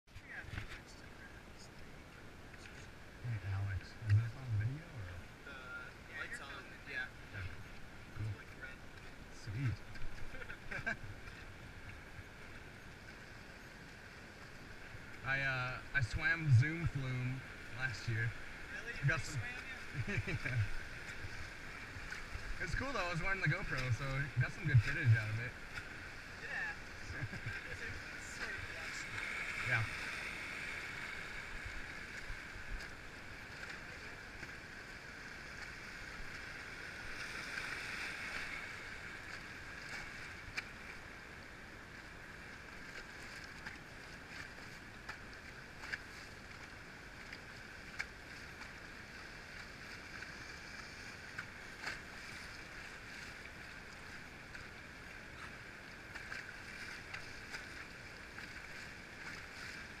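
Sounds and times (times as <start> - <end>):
rushing river water: 0.1 - 60.0.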